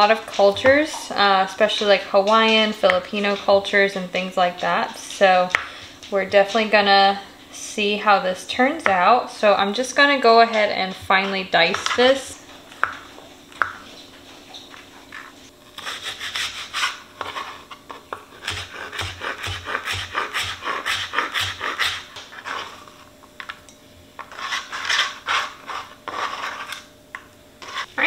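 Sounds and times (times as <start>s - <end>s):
knife chopping on plastic board: 18.1s - 22.3s.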